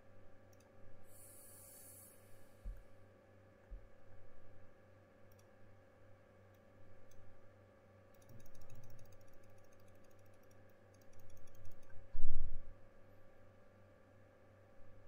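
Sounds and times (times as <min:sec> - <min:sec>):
keyboard and mouse clicks: 0:08.1 - 0:12.0.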